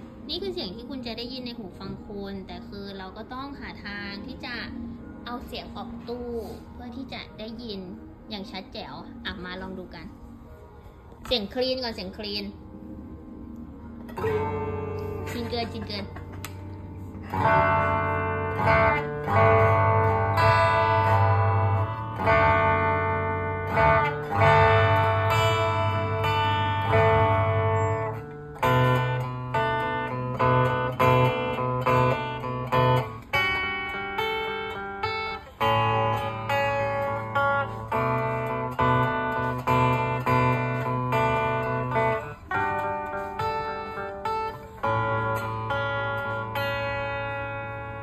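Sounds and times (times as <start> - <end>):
clean electric guitar chords: 12.7 - 48.0.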